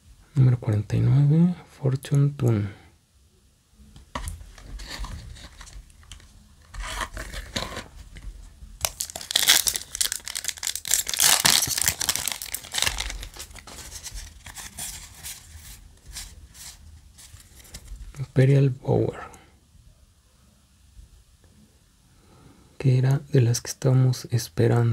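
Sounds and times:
cards being handled: 4.1 - 18.1
foil wrapper tearing: 8.8 - 15.5.

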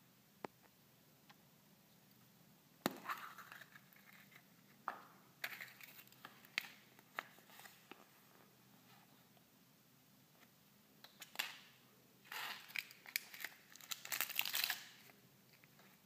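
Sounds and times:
plastic capsule crinkle and clatter: 5.4 - 8.0, 12.3 - 16.0.

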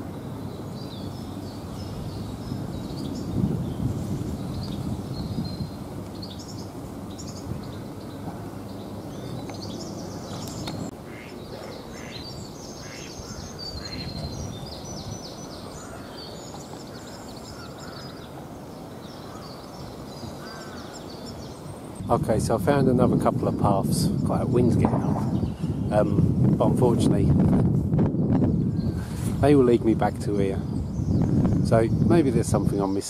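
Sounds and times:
wind rumbling on microphone: 0.0 - 33.0
ducks quacking: 11.0 - 14.2.

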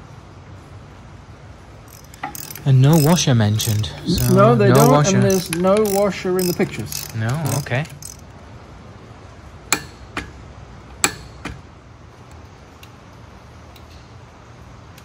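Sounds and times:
low steady hum: 0.0 - 10.9
metal clicks from hand tools: 1.9 - 8.2.

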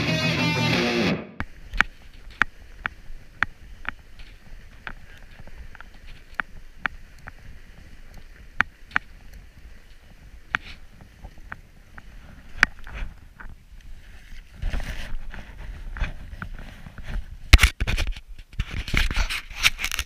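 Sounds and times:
bike rattling over bumps: 1.4 - 13.6
bike tyres rumbling on snow: 1.4 - 20.0.

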